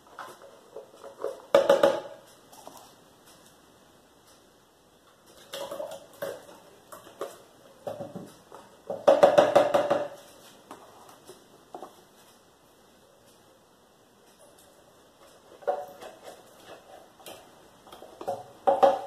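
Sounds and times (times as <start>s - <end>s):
kitchen items knocking and clattering: 0.0s - 2.2s, 5.4s - 10.4s, 15.5s - 19.0s.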